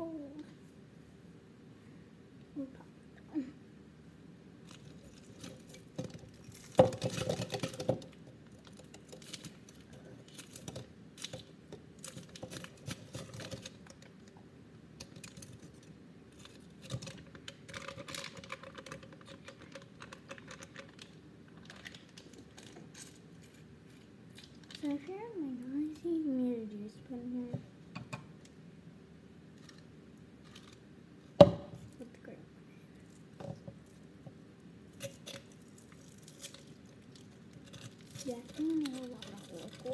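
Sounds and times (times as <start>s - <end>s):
plastic sleeves crinkling: 15.1s - 25.0s, 34.9s - 39.9s.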